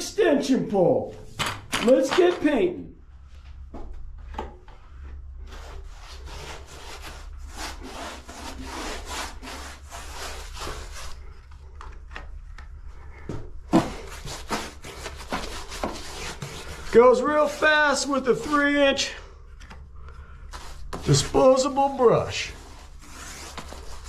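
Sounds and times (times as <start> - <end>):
paintbrush scrubbing on drywall: 5.0 - 11.6, 13.7 - 19.2, 20.5 - 24.0.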